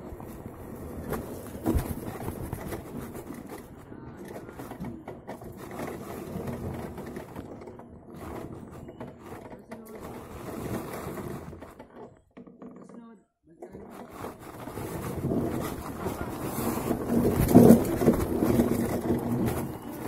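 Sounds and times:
mountain bike rattling: 13.8s - 20.0s
tyres on dirt: 13.8s - 20.0s.

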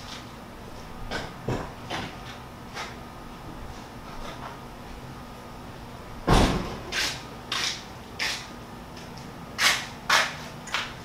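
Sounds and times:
heavy thump: 6.2s - 6.8s.

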